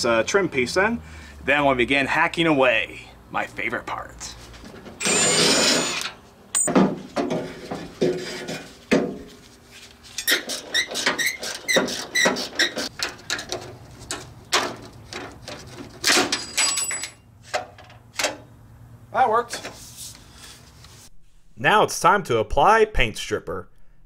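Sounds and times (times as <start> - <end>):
cordless impact driver running: 5.0 - 6.1
metal squeaking and scraping: 10.0 - 12.9.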